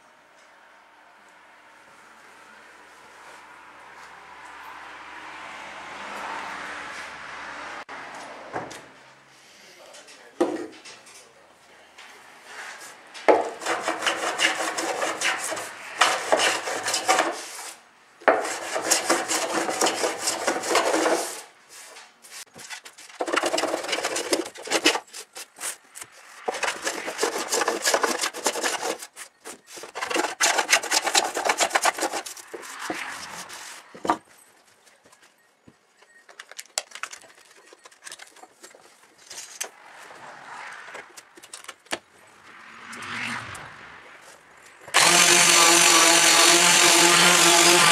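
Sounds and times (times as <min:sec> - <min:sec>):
hand plane scraping wood: 0:13.3 - 0:21.5, 0:22.5 - 0:34.0, 0:44.9 - 0:47.9.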